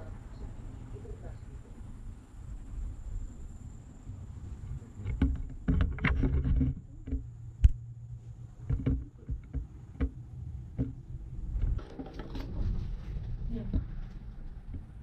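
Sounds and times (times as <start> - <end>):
cable car cabin rumble: 0.0 - 15.0
clicks and knocks: 5.0 - 7.8.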